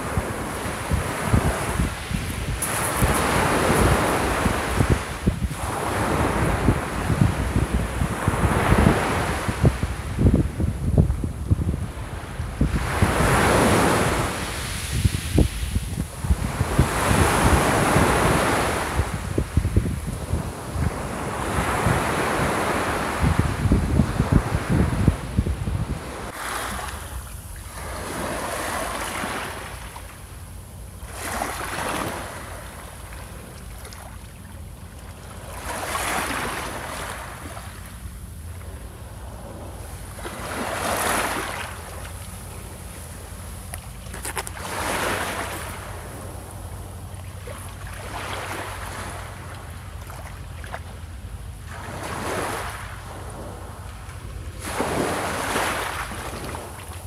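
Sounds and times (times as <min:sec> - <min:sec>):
waves washing onto pebbles: 0:00.0 - 0:06.5, 0:44.1 - 0:46.1
wind buffeting microphone: 0:00.0 - 0:30.0.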